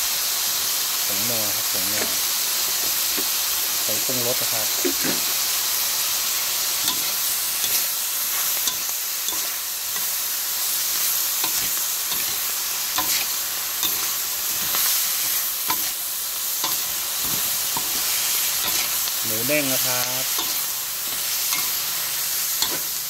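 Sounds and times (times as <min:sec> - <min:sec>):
food sizzling in a wok: 0:00.0 - 0:23.0
metal spatula scraping a pan: 0:06.8 - 0:23.0.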